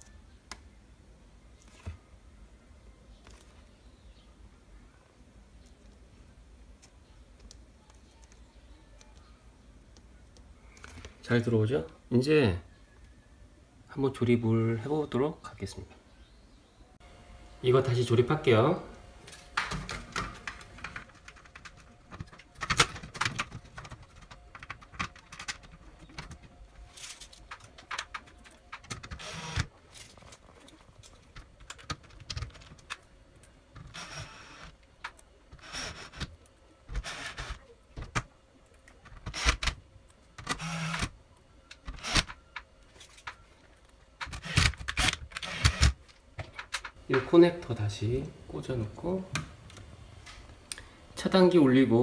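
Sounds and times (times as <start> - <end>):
cordless drill driving screws: 29.2 - 29.7, 44.4 - 46.0.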